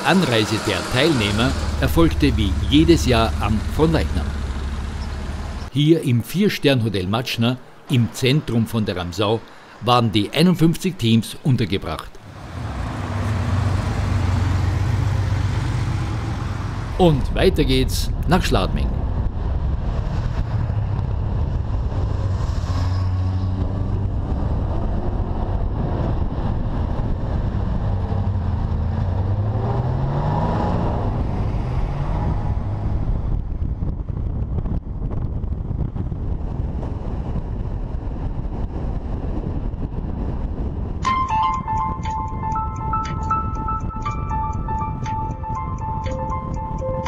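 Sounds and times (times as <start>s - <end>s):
car engine accelerating: 0.0s - 5.7s, 12.3s - 33.8s
road and wind noise: 0.0s - 47.0s.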